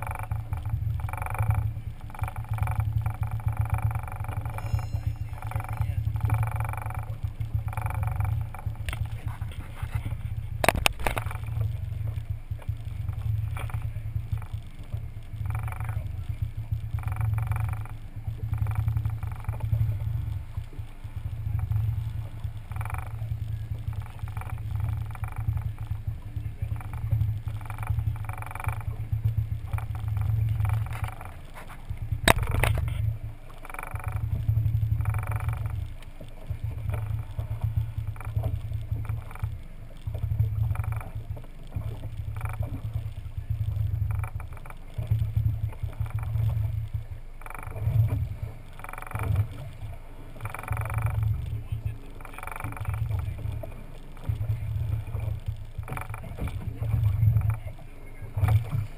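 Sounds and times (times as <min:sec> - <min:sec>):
boat engine rumble: 0:00.0 - 0:58.9
sharp click: 0:32.3 - 0:33.0.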